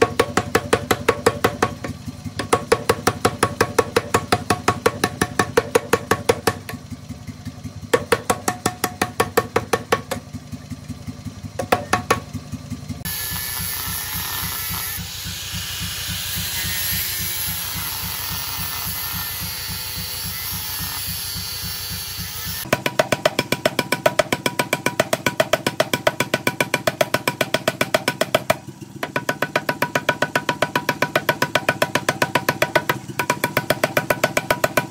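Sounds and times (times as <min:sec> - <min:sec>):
hammer striking steel on anvil: 0:11.6 - 0:12.3, 0:13.0 - 0:34.9.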